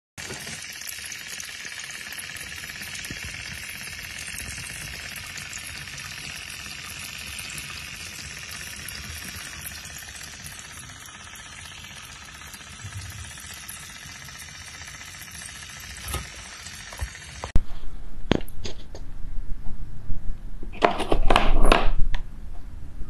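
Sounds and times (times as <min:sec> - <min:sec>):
clay fizzing and crackling in water: 0:00.2 - 0:17.6.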